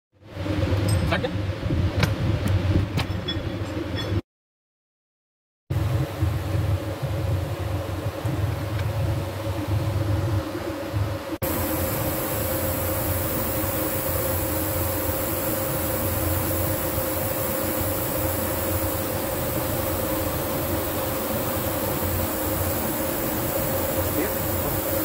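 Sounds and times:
machine hum: 5.7 - 25.0
high hiss: 11.4 - 25.0.

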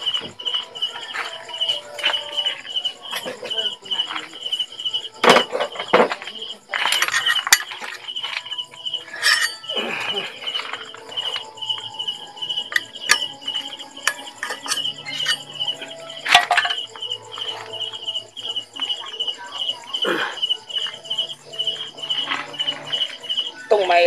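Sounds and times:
insect chirping: 0.0 - 24.0
metal parts clicking and knocking: 5.2 - 9.7, 12.6 - 15.6, 16.2 - 17.1.

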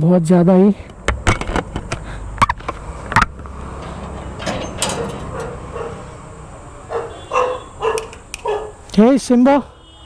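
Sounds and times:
metal bolt clanking: 1.1 - 6.1
steel gate rattling: 2.8 - 6.5.

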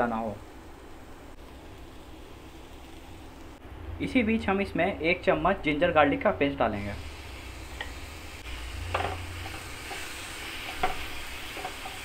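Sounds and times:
vegetables sizzling in butter: 0.0 - 3.6, 6.8 - 12.0.

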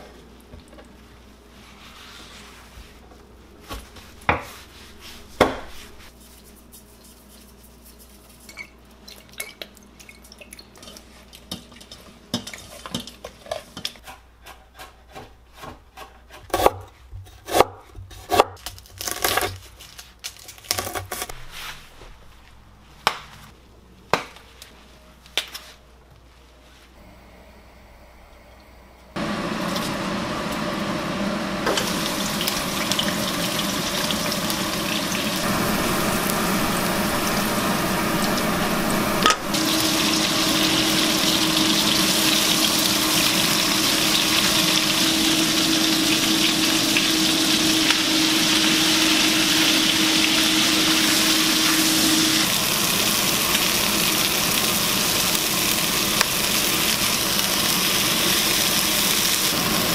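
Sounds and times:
fish frying in hot oil: 31.7 - 59.9.

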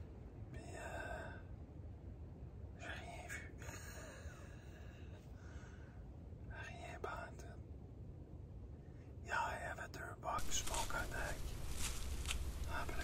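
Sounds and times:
low steady rumble: 0.0 - 13.0
person whispering and breathing: 0.5 - 1.5, 2.8 - 5.9, 6.5 - 7.6, 9.0 - 13.0.

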